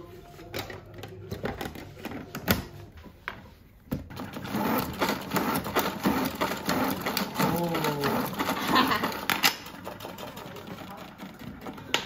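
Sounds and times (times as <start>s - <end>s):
salad spinner rattling whir: 4.1s - 12.0s.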